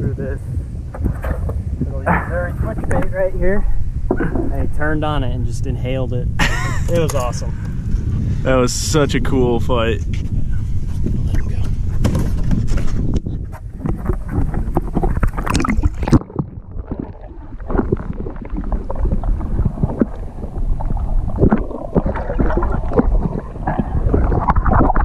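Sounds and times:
wind on microphone: 0.0s - 25.0s
muffled underwater knocks: 0.6s - 3.1s, 11.0s - 25.0s
water splashing: 13.7s - 25.0s.

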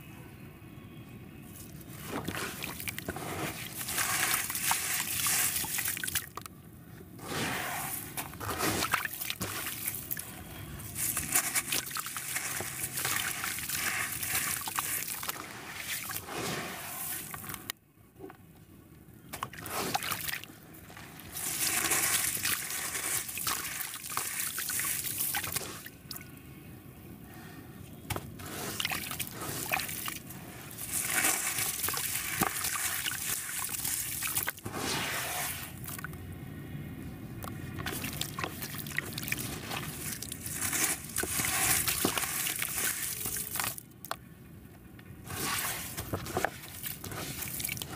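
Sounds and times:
wet cement chunks crunching: 2.0s - 6.4s, 10.8s - 17.7s, 19.4s - 25.9s, 28.1s - 35.0s, 37.5s - 44.2s, 45.3s - 47.9s
water sloshing and dripping: 37.5s - 43.8s.

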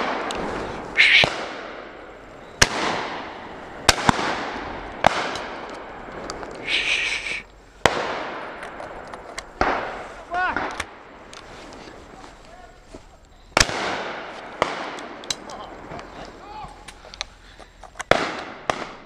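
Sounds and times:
shotgun shots echoing: 0.0s - 6.1s, 7.8s - 11.2s, 13.6s - 15.9s, 18.1s - 19.0s.

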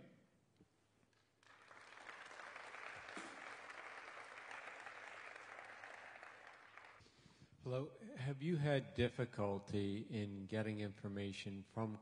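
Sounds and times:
audience applauding: 1.2s - 7.0s.

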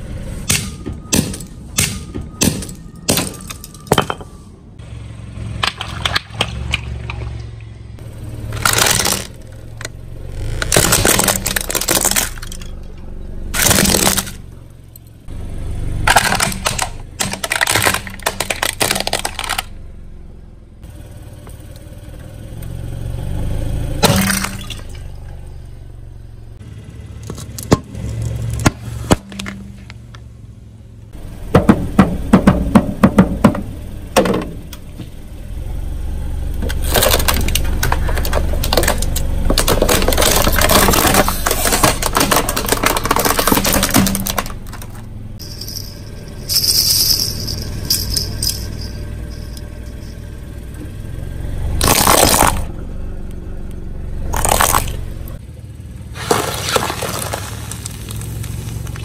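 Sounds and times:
low car hum: 0.0s - 59.0s
car tyre crushing plastic toys: 5.5s - 7.5s, 8.4s - 14.6s, 16.0s - 19.9s, 24.0s - 25.0s, 36.6s - 50.9s, 51.7s - 52.8s, 54.2s - 55.4s, 56.2s - 59.0s.

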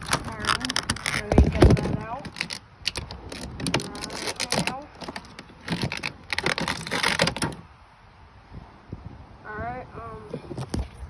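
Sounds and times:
packaging crinkling: 0.0s - 7.6s
packaging rustling and clicking: 0.0s - 7.6s.

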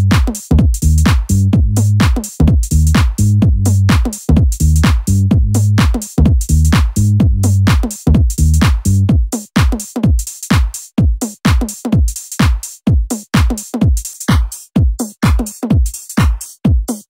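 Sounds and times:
low bass line: 0.0s - 9.1s
drum machine kick: 0.0s - 17.0s
hi-hats: 0.0s - 17.0s.

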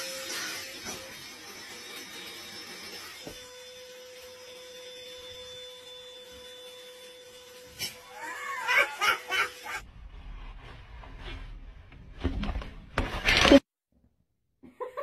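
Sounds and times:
handheld vacuum cleaner humming: 0.0s - 9.8s
people laughing: 8.5s - 9.8s.

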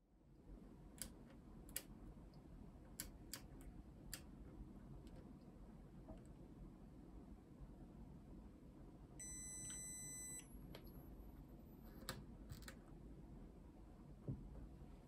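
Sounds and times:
electronic beep: 9.2s - 10.5s.

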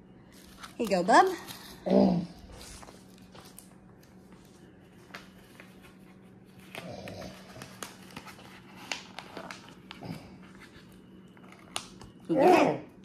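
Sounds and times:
paper envelope rustling: 2.4s - 12.2s.

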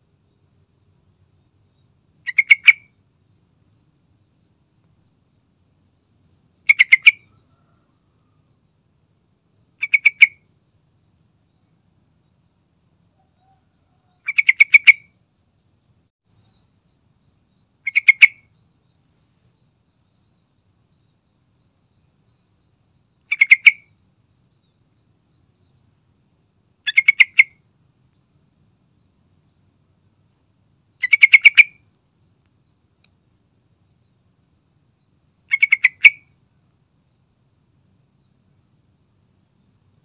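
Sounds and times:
bird calling in quick notes: 2.2s - 2.9s, 6.7s - 7.4s, 17.8s - 18.5s, 23.3s - 23.9s, 26.9s - 27.6s, 31.0s - 31.8s, 35.5s - 36.2s.

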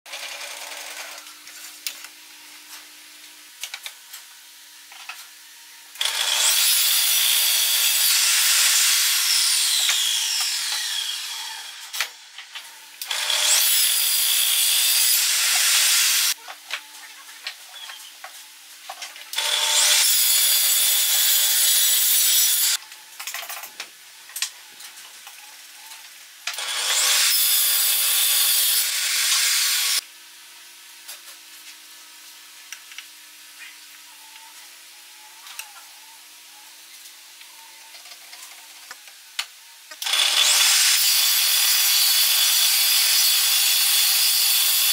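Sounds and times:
table saw cutting wood: 5.7s - 16.4s, 19.3s - 22.8s, 26.5s - 30.0s, 39.6s - 44.9s.

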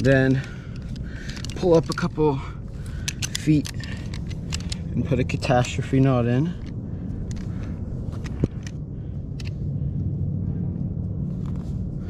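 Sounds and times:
small gear clicks: 0.0s - 9.6s
steady low rumble: 0.0s - 12.0s.

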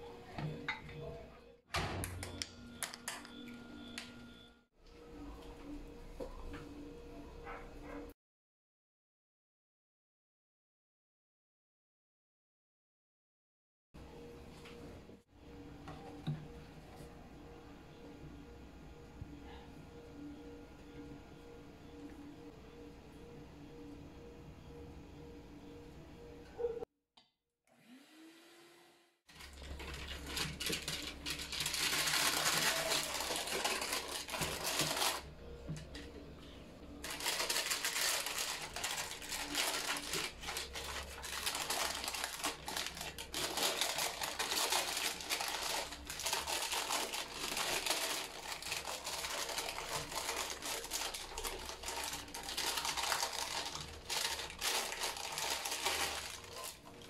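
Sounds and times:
baking paper crinkling: 29.3s - 35.3s, 37.0s - 57.0s.

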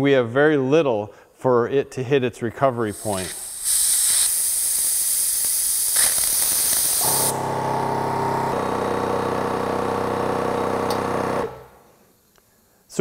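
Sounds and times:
compressed air hissing: 2.8s - 7.5s
air compressor humming: 2.8s - 12.0s.

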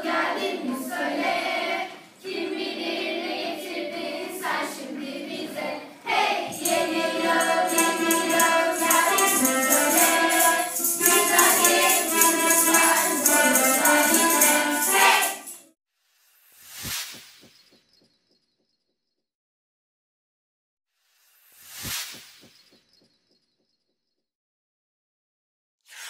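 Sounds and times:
children's choir singing: 0.0s - 15.7s
jingling percussion: 6.5s - 15.7s.

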